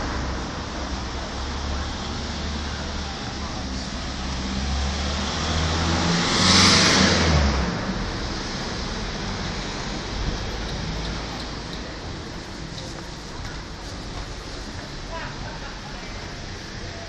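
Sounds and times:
street traffic noise: 0.0s - 17.0s
vehicle driving past: 3.7s - 11.6s.

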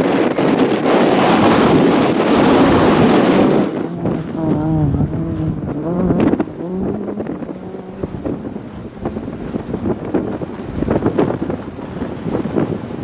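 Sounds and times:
crackles and rumble: 0.0s - 13.0s
wind buffeting microphone: 0.0s - 13.0s
rally car engine revving: 0.8s - 10.3s.

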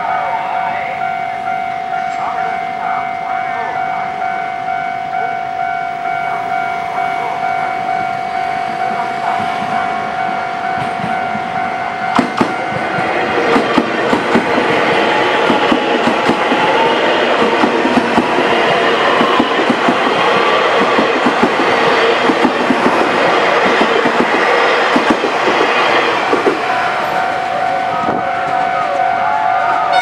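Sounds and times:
level crossing warning signal: 0.0s - 30.0s
train wheels clattering over rail joints: 12.1s - 26.7s.

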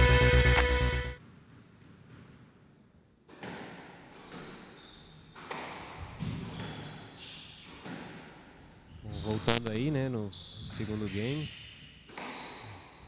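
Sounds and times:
squash ball cracking off racket: 3.3s - 4.7s, 5.4s - 6.8s, 7.7s - 8.4s, 12.1s - 12.8s
shoes squeaking on court: 3.4s - 9.6s, 10.4s - 13.0s.

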